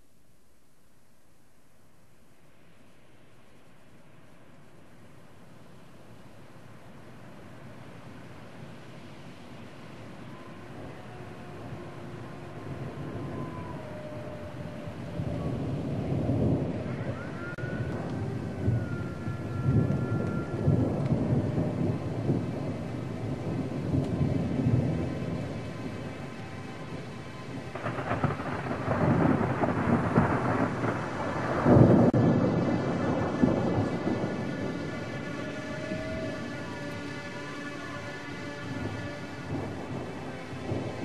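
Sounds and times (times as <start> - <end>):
rain: 0.0 - 41.0
rolling thunder: 10.0 - 41.0.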